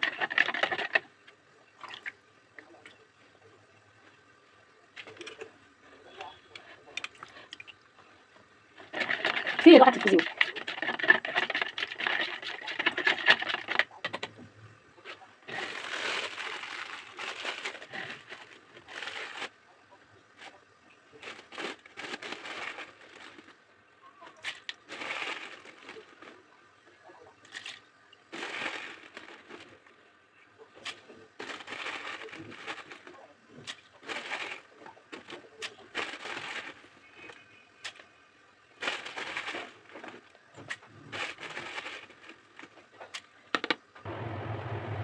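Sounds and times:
metal spoon scraping plastic jug: 0:00.0 - 0:01.0, 0:08.8 - 0:14.2
flakes pouring into plastic jug: 0:15.4 - 0:19.6, 0:21.2 - 0:23.6, 0:24.4 - 0:26.4, 0:27.5 - 0:29.9, 0:30.8 - 0:38.0, 0:38.8 - 0:42.8.

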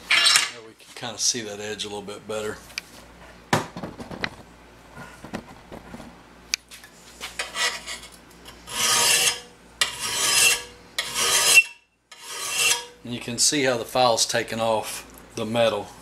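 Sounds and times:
file rasping on metal blade: 0:07.4 - 0:13.0.

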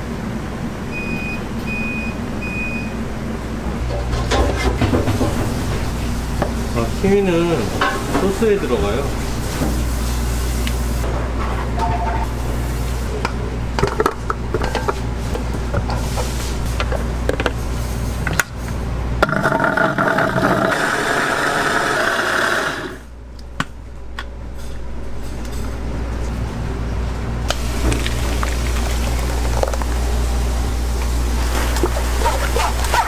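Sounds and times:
kitchen hum: 0:00.0 - 0:33.0
food processor motor running: 0:19.3 - 0:23.1.

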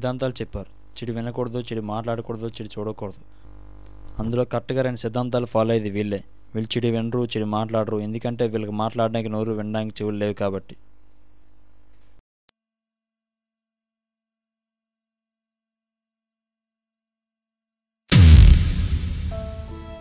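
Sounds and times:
deep boom: 0:18.1 - 0:20.0.

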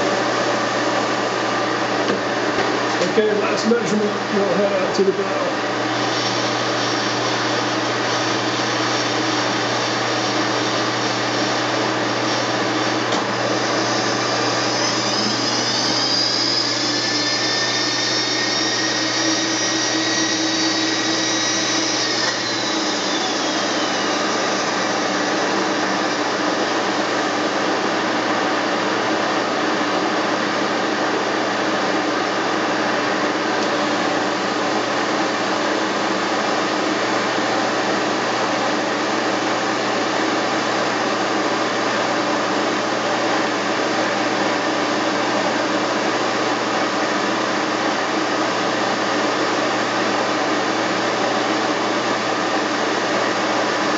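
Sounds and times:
whirring shop machinery: 0:00.0 - 0:53.9
power-feed motor whining: 0:04.0 - 0:29.6.

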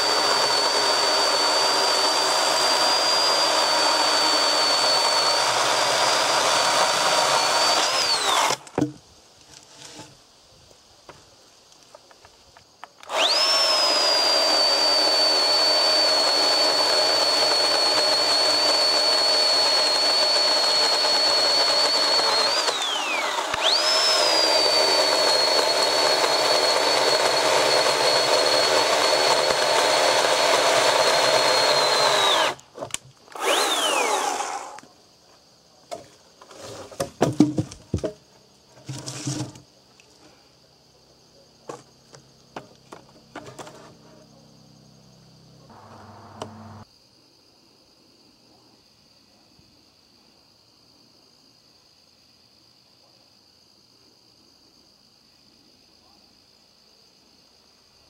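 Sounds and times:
electric chainsaw cutting log: 0:00.0 - 0:08.9, 0:13.0 - 0:34.8, 0:45.7 - 0:46.8.

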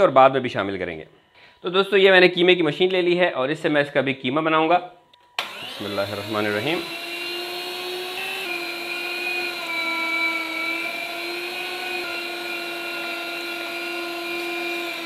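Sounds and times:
electric meat grinder whine: 0:05.4 - 0:15.0.

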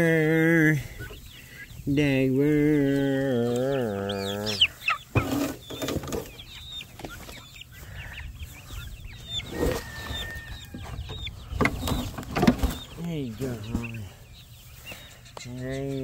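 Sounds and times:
chicks peeping: 0:00.0 - 0:16.0
thumps and rustles in grass: 0:11.6 - 0:12.9.

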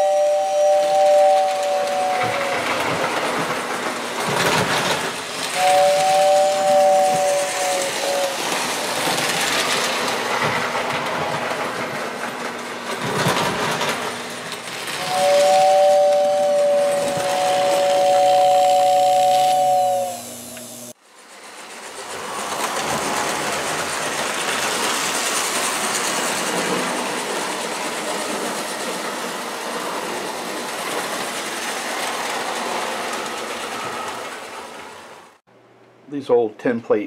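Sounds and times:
two-note train horn: 0:00.0 - 0:02.6, 0:05.6 - 0:08.4, 0:15.0 - 0:20.9
model train rattling on track: 0:00.0 - 0:35.4.

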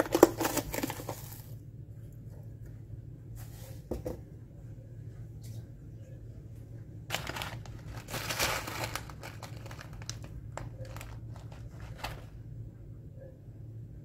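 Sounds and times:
paper packet crinkling: 0:00.0 - 0:01.6, 0:07.1 - 0:12.4.

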